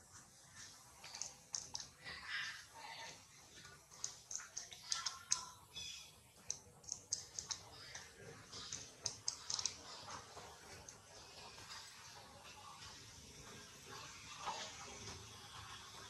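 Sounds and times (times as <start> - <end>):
faint high-pitched clicks: 3.9 - 9.8.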